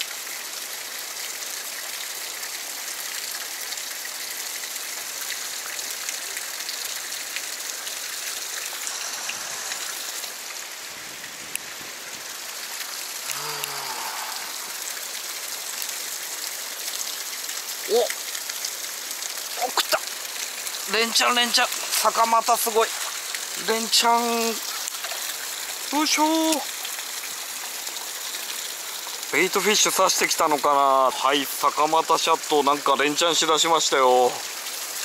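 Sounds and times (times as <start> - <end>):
stream water rushing over rocks: 0.0 - 35.0
low voice-like sound: 13.2 - 14.8.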